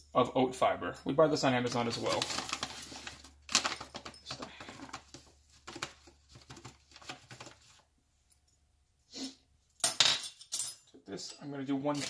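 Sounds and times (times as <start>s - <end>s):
pouch rustling and crinkling: 1.8s - 7.8s.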